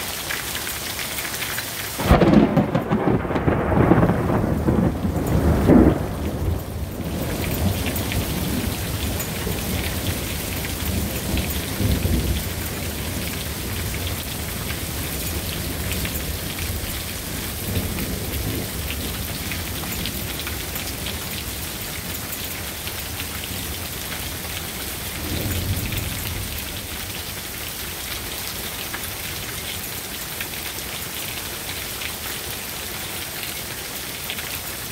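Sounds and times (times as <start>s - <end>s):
heavy rain pattering: 0.0s - 34.9s
thunder rumbling: 2.0s - 29.4s.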